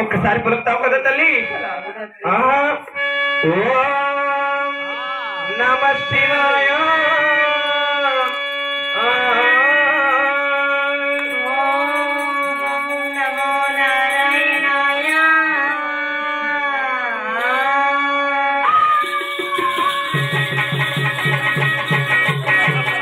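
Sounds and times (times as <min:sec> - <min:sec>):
person singing ornamented melody: 0:06.2 - 0:23.0.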